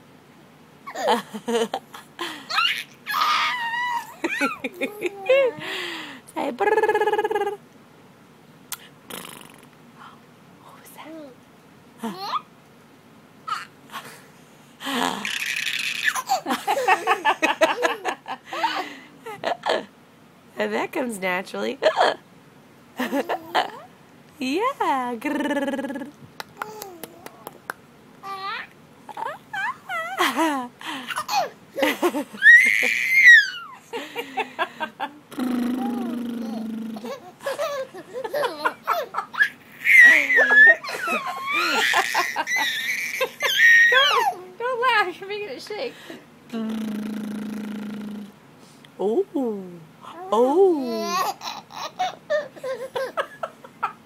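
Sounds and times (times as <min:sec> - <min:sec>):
baby laughing: 0:02.2 - 0:05.6, 0:15.1 - 0:19.7, 0:28.2 - 0:33.9, 0:35.8 - 0:44.4, 0:50.8 - 0:54.0.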